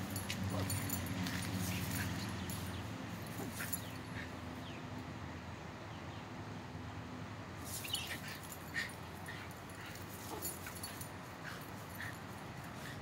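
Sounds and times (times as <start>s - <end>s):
grass rustling: 0.0s - 4.2s, 7.6s - 13.0s.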